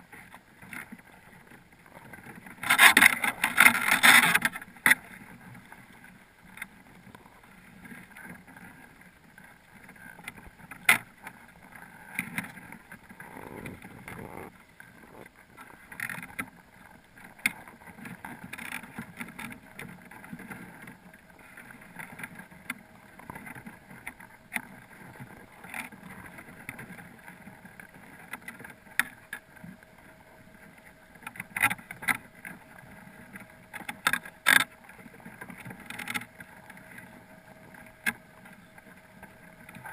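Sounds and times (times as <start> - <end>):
faint steady hum: 0.0 - 39.9
muffled underwater noise: 13.0 - 15.6
crabs clicking and knocking: 33.7 - 37.0.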